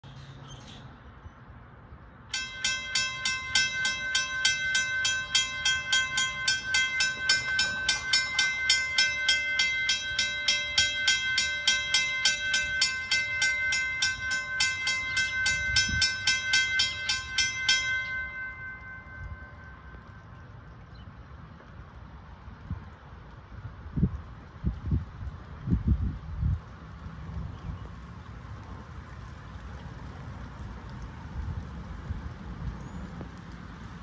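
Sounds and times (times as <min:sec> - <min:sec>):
crossing warning bell ringing: 0:02.3 - 0:20.6.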